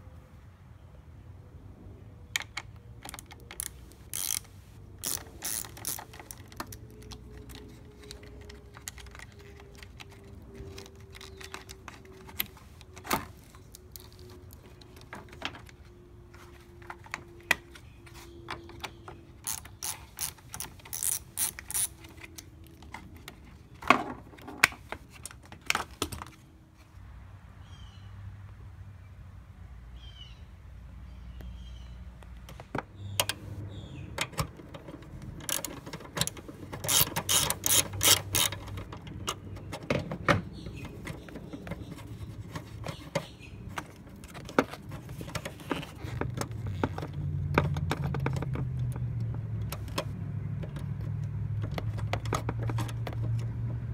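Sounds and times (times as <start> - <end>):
socket ratchet clicking: 2.4 - 13.0, 19.4 - 23.0, 34.2 - 39.6.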